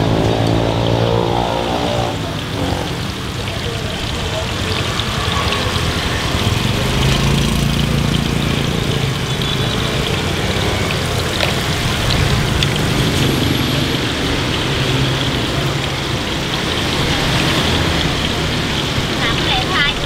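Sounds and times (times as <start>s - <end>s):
deep-frying sizzle in oil: 0.0s - 20.0s
passing motorbikes: 0.0s - 20.0s
street traffic: 0.0s - 20.0s.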